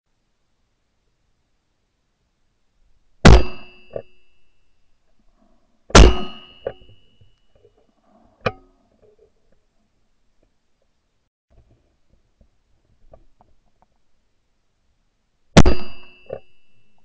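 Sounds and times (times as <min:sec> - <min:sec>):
shotgun shots: 0:03.2 - 0:03.9, 0:05.9 - 0:06.9, 0:15.6 - 0:16.2.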